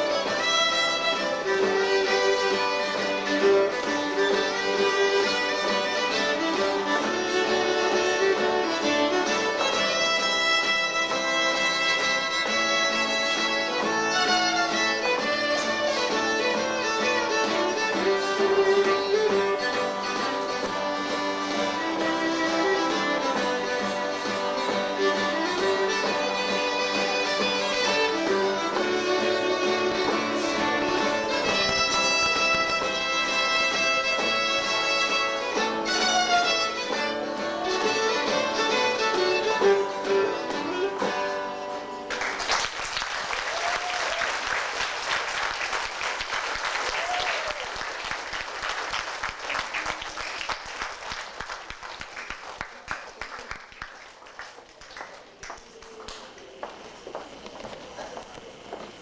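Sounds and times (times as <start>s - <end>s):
fiddle and guitar playing lively tune: 0.0s - 42.4s
applause: 42.1s - 56.6s.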